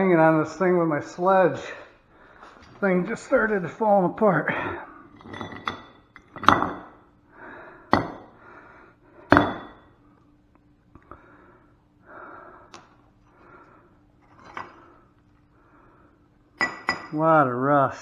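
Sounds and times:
person breathing hard: 1.6 - 2.7, 7.3 - 9.6, 11.0 - 16.4
metal pieces clinking on concrete: 5.1 - 6.9.

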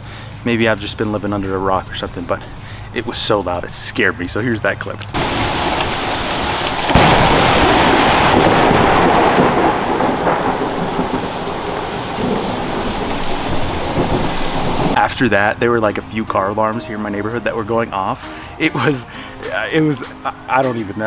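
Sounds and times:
heavy rain: 5.1 - 15.4
loud thunderclap rumbling: 5.2 - 15.0.

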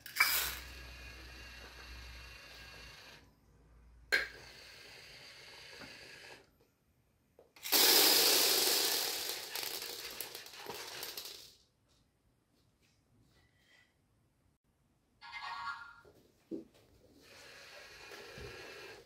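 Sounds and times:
small pieces clattering on wooden floor: 7.6 - 11.6.

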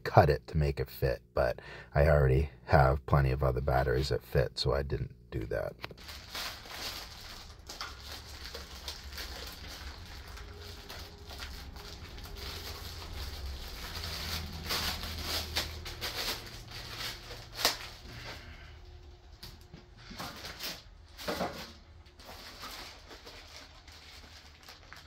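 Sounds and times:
plastic packaging crinkling: 5.9 - 25.0
webbing rustling: 6.0 - 21.2.

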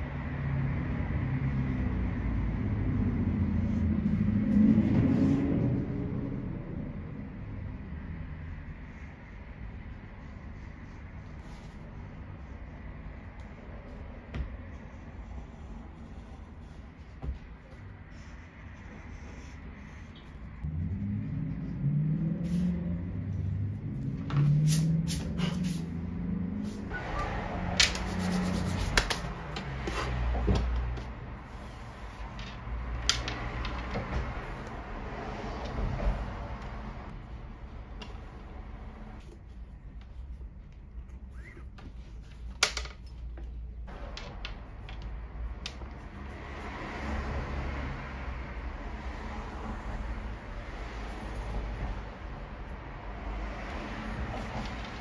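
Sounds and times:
low steady rumble: 0.0 - 29.8
low hum: 0.0 - 41.3.

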